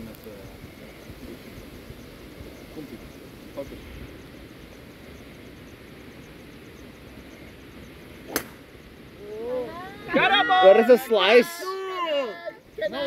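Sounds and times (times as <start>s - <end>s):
faint background noise: 0.0s - 13.0s
golf club striking ball: 8.3s - 8.7s.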